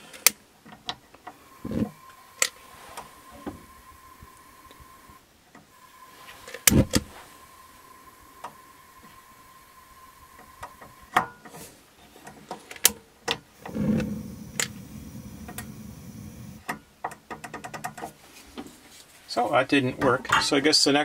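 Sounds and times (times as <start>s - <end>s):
gas flame rushing: 5.8s - 10.8s, 13.6s - 16.6s
igniter clicking: 12.8s - 16.8s.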